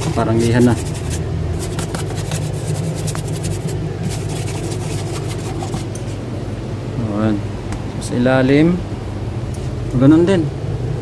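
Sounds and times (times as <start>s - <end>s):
hand rubbing frosted wall: 0.0s - 6.2s
refrigerator compressor humming: 0.0s - 11.0s.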